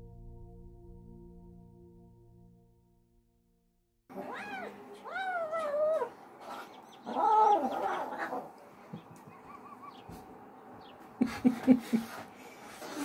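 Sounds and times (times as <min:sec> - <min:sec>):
young cat yowling: 0:04.1 - 0:06.2, 0:07.0 - 0:08.5.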